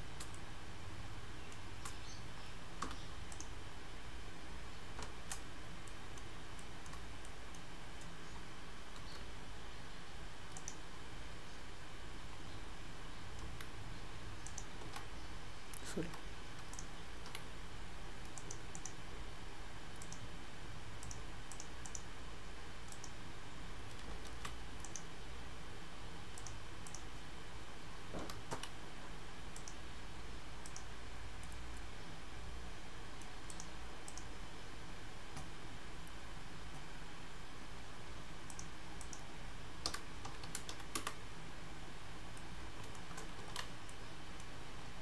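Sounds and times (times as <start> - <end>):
low background hum: 0.0 - 45.0
computer mouse clicks: 0.2 - 0.5, 1.5 - 2.2, 2.8 - 3.6, 4.9 - 8.2, 8.9 - 9.3, 10.5 - 10.8, 14.4 - 17.5, 18.2 - 19.0, 19.9 - 20.3, 21.0 - 22.1, 22.8 - 23.2, 23.8 - 25.1, 26.3 - 27.1, 28.1 - 28.8, 29.5 - 29.8, 30.6 - 31.9, 33.2 - 34.4, 38.4 - 41.2, 42.3 - 44.5
scroll wheel ticks: 2.8 - 3.6, 5.0 - 8.2, 10.5 - 10.8, 14.4 - 15.1, 15.7 - 17.5, 18.2 - 19.0, 19.9 - 20.3, 21.0 - 22.1, 22.8 - 23.2, 23.9 - 25.1, 26.3 - 27.1, 29.5 - 29.8, 30.6 - 31.9, 33.2 - 34.3, 38.4 - 41.2
keyboard key presses: 38.5 - 41.2.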